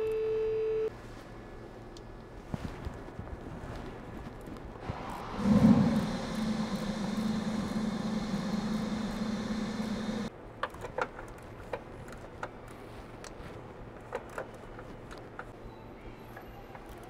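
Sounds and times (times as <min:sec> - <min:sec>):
power tool humming: 0:05.0 - 0:10.3.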